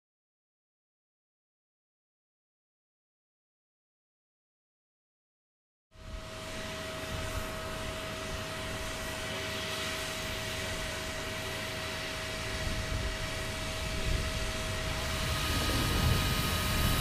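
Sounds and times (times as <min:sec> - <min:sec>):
steady whine: 0:06.0 - 0:17.0
steam locomotive hissing: 0:06.3 - 0:17.0.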